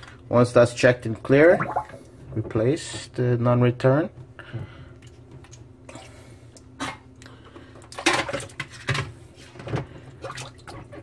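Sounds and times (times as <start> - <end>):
water splashing: 1.6 - 2.0.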